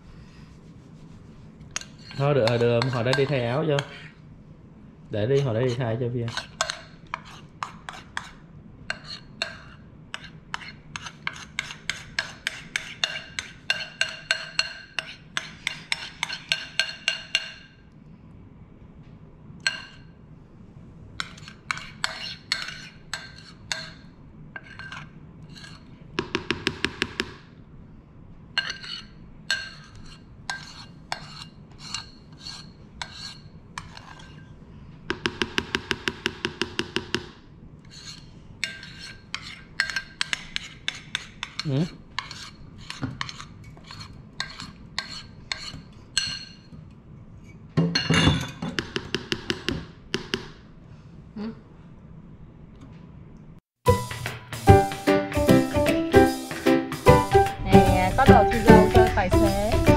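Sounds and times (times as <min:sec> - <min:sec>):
whisk scraping a ceramic bowl: 0:00.7 - 0:04.2, 0:05.2 - 0:17.6, 0:21.2 - 0:24.0, 0:24.6 - 0:25.9, 0:28.6 - 0:34.6, 0:37.9 - 0:46.5.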